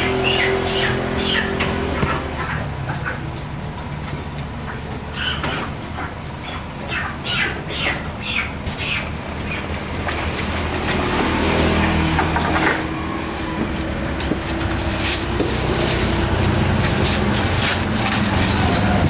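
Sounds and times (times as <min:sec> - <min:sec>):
plastic bag rustling: 0:13.2 - 0:19.0.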